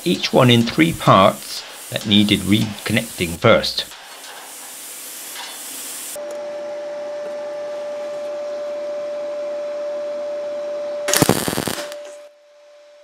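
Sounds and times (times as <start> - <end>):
welder humming: 0.0 - 4.0, 11.1 - 12.2
welding arc burst: 0.0 - 4.0, 11.1 - 12.2
hiss: 0.0 - 6.2, 11.2 - 12.0.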